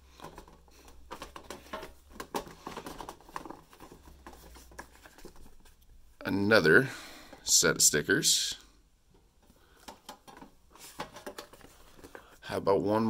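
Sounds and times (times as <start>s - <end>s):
rustling in metal tin: 0.1s - 5.8s.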